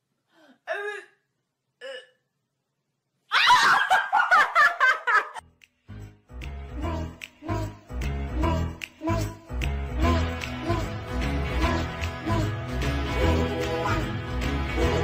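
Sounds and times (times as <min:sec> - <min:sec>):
woman laughing loudly: 0:03.3 - 0:05.4.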